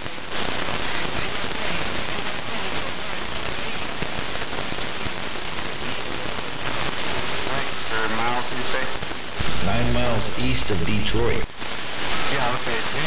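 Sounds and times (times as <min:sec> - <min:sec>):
radio static hiss and crackle: 0:00.0 - 0:13.0
speech over radio: 0:07.3 - 0:11.5, 0:12.1 - 0:13.0.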